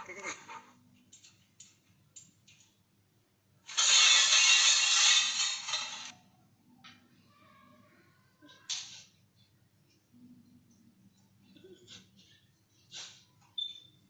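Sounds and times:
dishes and rack rattling: 3.7s - 6.1s.

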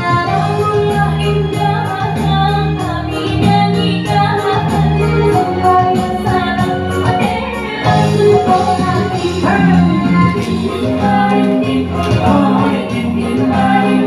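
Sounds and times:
woman singing: 0.0s - 14.0s
steady percussion beat: 9.2s - 11.4s.

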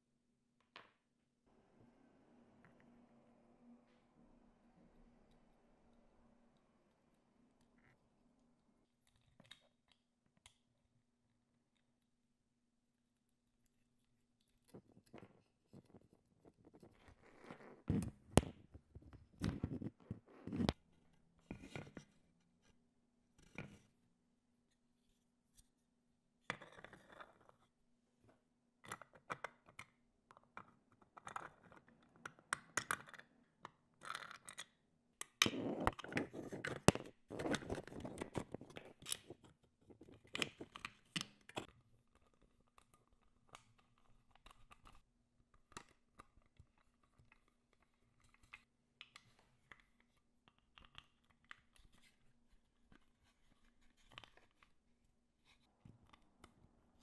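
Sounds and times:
faint steady hum: 1.5s - 9.1s.

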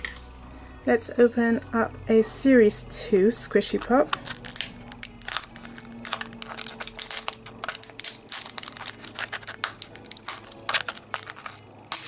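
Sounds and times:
plastic wrapper crinkling and tearing: 4.0s - 12.0s.

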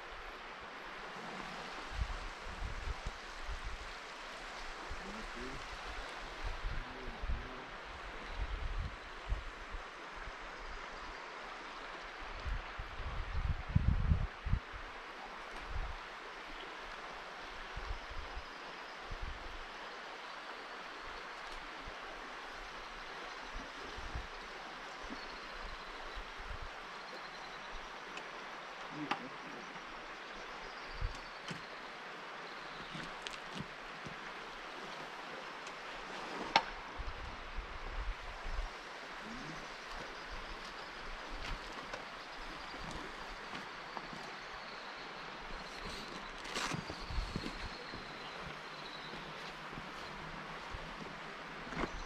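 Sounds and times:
wind buffeting microphone: 12.4s - 14.9s.

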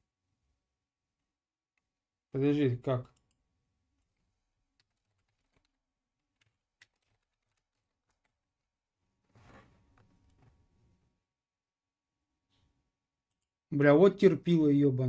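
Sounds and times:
faint keyboard clicks: 4.0s - 8.4s.

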